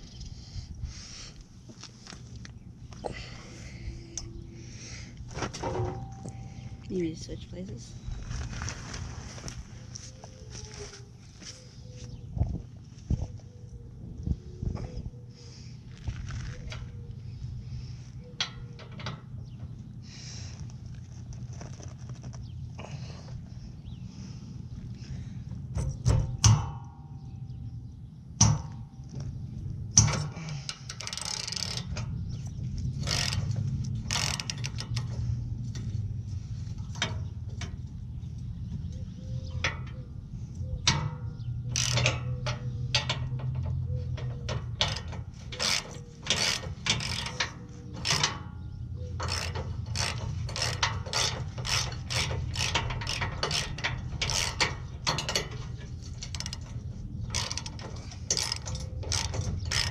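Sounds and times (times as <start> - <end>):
sharp metal knocks: 25.8 - 27.2, 28.4 - 29.0
hand ratchet clicking: 30.0 - 32.2, 32.9 - 35.3, 41.7 - 48.4, 49.1 - 59.9.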